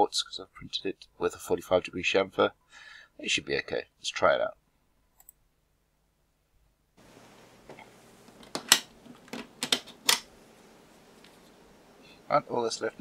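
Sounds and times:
faint room hiss: 0:00.0 - 0:13.0
computer mouse clicks: 0:05.2 - 0:05.4.

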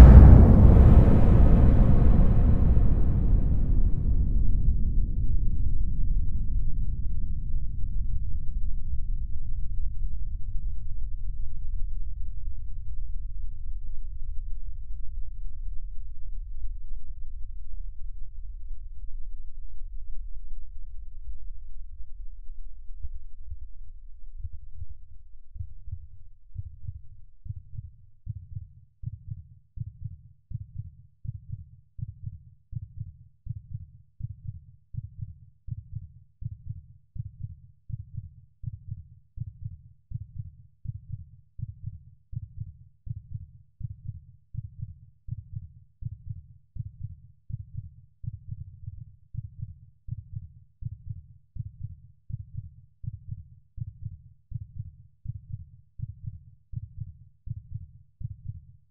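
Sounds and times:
heartbeat thumps: 0:00.0 - 0:05.2.

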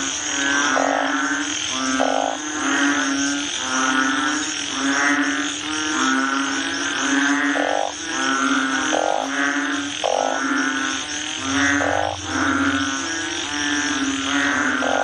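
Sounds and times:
bullfrogs droning calls: 0:00.0 - 0:15.0
short buzzy frog calls: 0:03.8 - 0:15.0.

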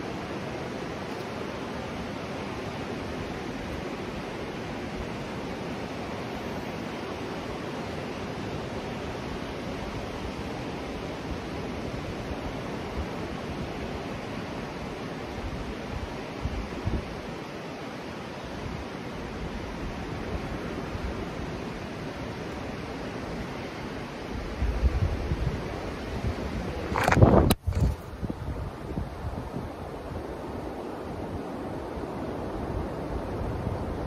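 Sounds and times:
ocean surf rushing: 0:00.0 - 0:34.0
wind bumps on microphone: 0:24.6 - 0:30.3.

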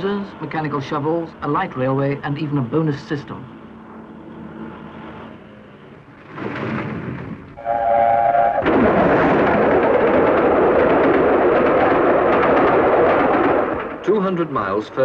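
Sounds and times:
short rumble: 0:06.1 - 0:14.8
steam locomotive whistle: 0:07.6 - 0:08.7
train rushing past: 0:07.6 - 0:15.0.

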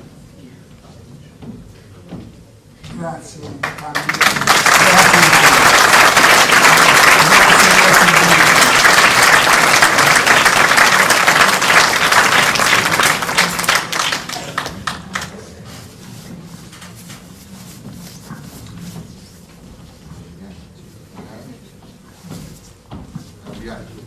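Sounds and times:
audience applauding: 0:03.6 - 0:15.5.

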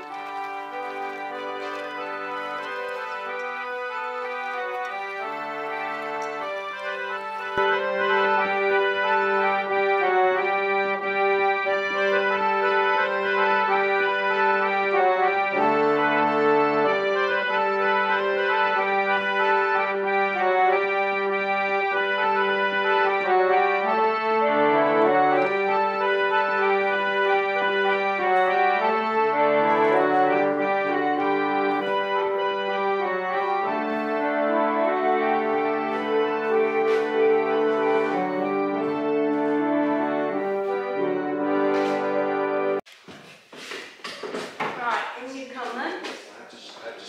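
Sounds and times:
reed organ chords: 0:00.0 - 0:42.8.

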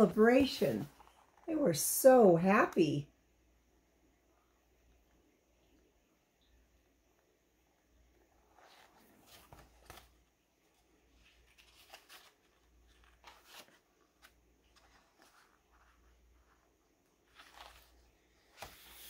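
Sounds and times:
book pages rustling: 0:00.1 - 0:01.5, 0:08.3 - 0:19.0.

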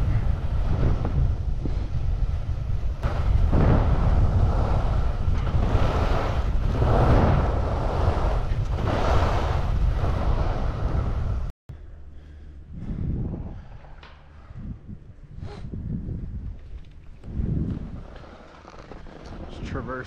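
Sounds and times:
skis carving across snow: 0:00.0 - 0:11.5, 0:17.3 - 0:20.0
wind buffeting microphone: 0:00.0 - 0:11.5, 0:12.6 - 0:20.0.

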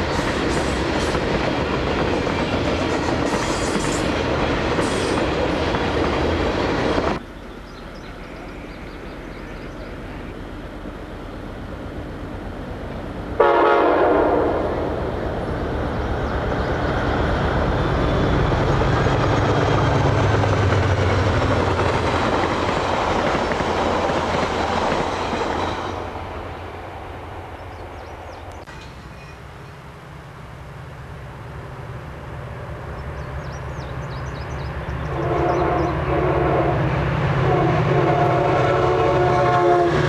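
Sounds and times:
train wheels passing: 0:00.0 - 0:40.0
locomotive horn blast: 0:13.4 - 0:15.0, 0:35.1 - 0:40.0.

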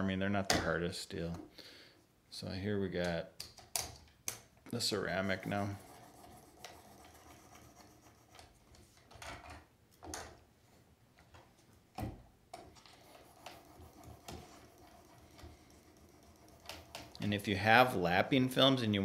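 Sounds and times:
faint clicks and scrapes: 0:05.3 - 0:09.6, 0:12.6 - 0:17.3.

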